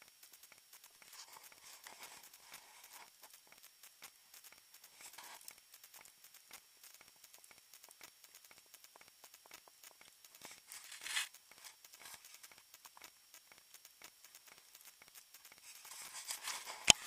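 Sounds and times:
faint ticks: 0.0 - 17.0
soft rustle: 10.4 - 12.6, 15.6 - 17.0.

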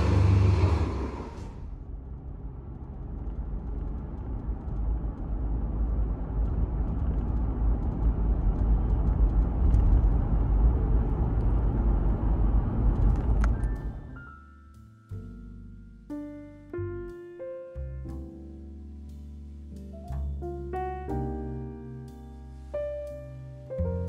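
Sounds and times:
car driving along a street: 0.0 - 16.1.

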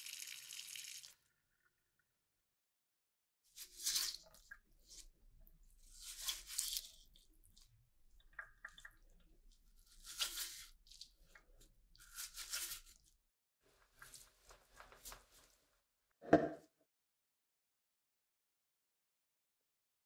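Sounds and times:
wet brush squishing: 3.6 - 5.2, 5.8 - 13.1, 13.7 - 15.6.

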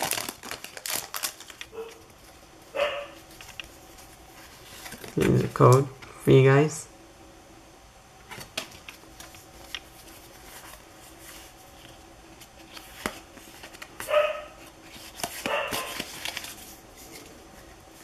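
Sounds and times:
trading cards rustling: 0.0 - 5.9, 8.3 - 17.4
dog barking: 1.7 - 2.0, 2.8 - 3.2, 14.1 - 14.6, 15.5 - 16.0.

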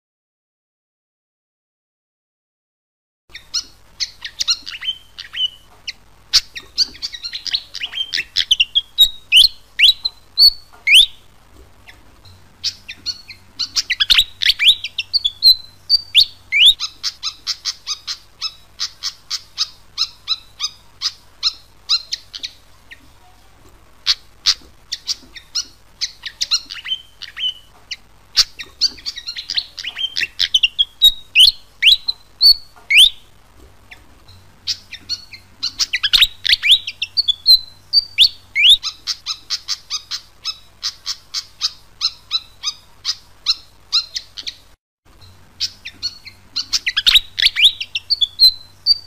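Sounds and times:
bird singing squeaky notes: 11.9 - 33.3, 33.9 - 49.0.

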